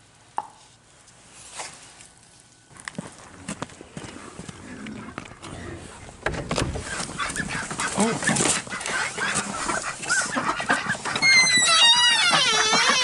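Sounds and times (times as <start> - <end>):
geese honking: 6.7 - 13.0.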